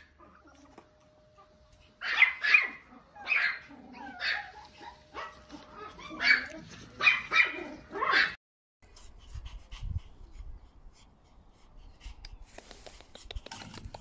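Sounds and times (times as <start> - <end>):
small dog yapping: 2.0 - 8.4.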